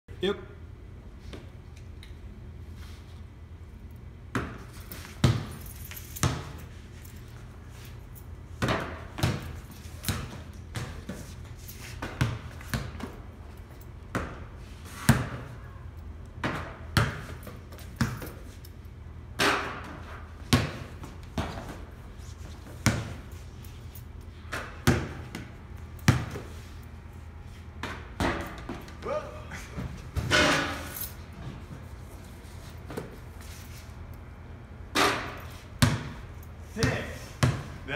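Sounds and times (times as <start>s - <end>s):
basketballs hitting backboard and rim: 4.3s - 6.8s, 8.5s - 15.7s, 16.3s - 18.6s, 19.3s - 23.5s, 24.4s - 26.7s, 27.7s - 31.6s, 34.9s - 37.9s
ball bouncing on concrete: 8.6s - 11.3s, 12.0s - 13.2s, 16.4s - 18.5s, 24.5s - 26.6s, 27.8s - 29.0s, 35.0s - 37.8s.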